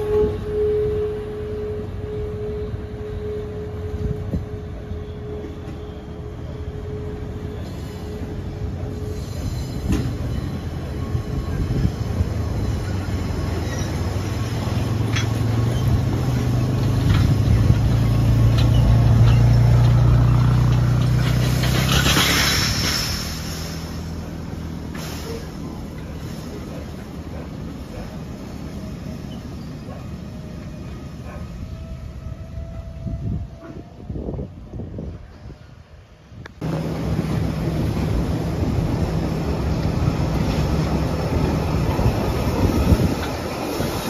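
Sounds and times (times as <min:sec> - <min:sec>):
train wheels rumbling: 0:00.0 - 0:44.0
wheels squealing: 0:07.0 - 0:32.2.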